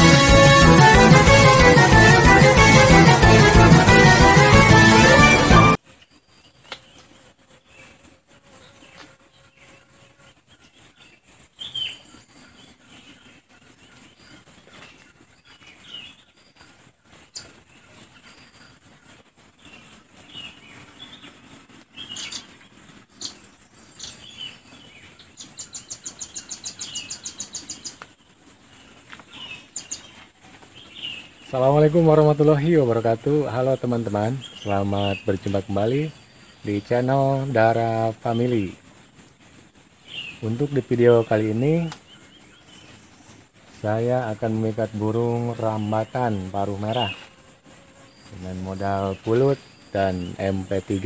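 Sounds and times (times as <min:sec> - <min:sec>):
birds chirping: 0:10.5 - 0:51.0.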